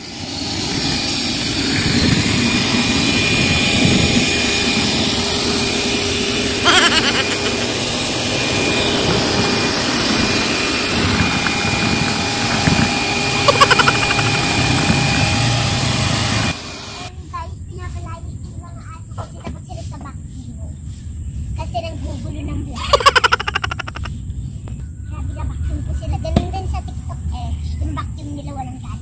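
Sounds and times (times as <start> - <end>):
vacuum cleaner motor running: 7.4 - 17.1.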